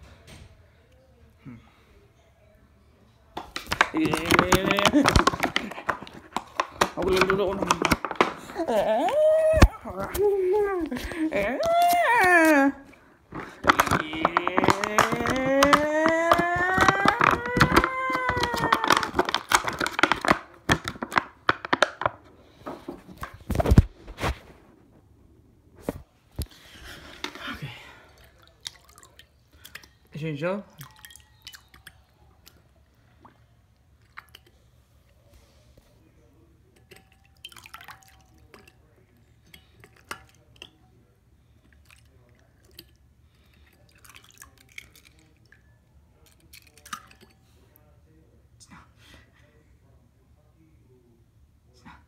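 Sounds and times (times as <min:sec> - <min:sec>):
small water splashes and drips: 0:28.0 - 0:30.1, 0:30.7 - 0:34.6, 0:36.8 - 0:40.8, 0:41.7 - 0:45.6.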